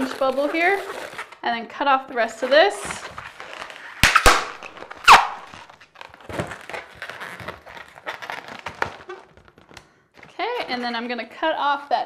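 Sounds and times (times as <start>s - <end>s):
balloons squeaking and rubbing: 0.0s - 12.0s
balloon snaps: 3.9s - 5.7s.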